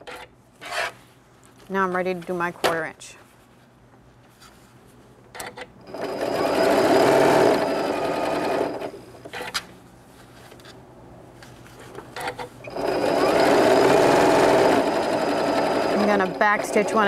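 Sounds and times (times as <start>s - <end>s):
sewing machine stitching: 5.9s - 9.0s, 12.7s - 17.0s.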